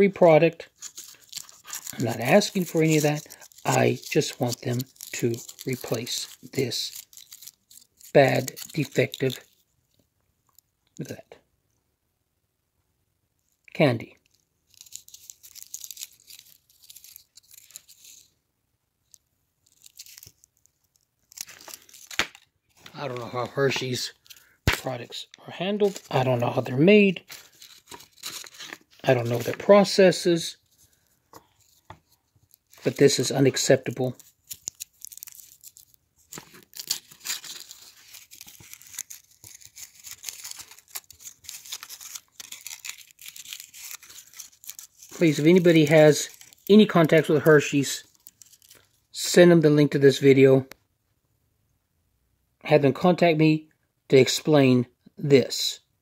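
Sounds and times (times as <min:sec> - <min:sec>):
foil wrapper crinkling: 0:00.6 - 0:09.6, 0:14.3 - 0:18.3, 0:19.0 - 0:25.1, 0:25.7 - 0:30.0, 0:30.6 - 0:49.1.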